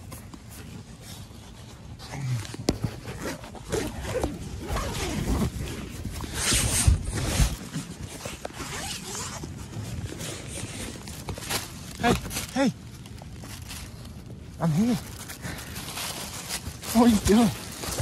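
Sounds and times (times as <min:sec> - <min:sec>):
tent zipper rasping: 0:00.6 - 0:12.7, 0:14.6 - 0:18.0
nylon fabric rustling: 0:02.9 - 0:18.0.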